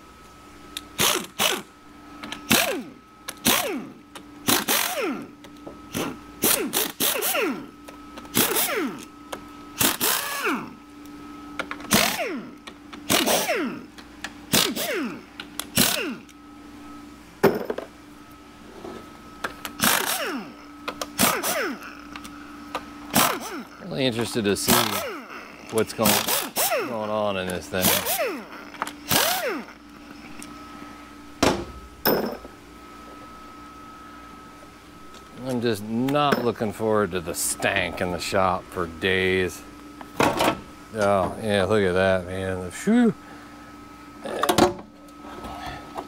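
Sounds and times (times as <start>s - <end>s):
power tool bursts with falling whine: 1.0s - 1.7s, 2.3s - 9.2s, 9.8s - 10.8s, 11.8s - 16.4s, 19.6s - 23.8s, 24.6s - 30.4s.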